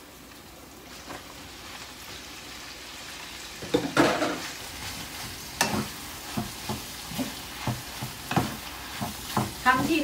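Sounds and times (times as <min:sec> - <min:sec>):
meat sizzling in a frying pan: 0:00.0 - 0:10.0
spatula stirring in pan: 0:04.0 - 0:10.0.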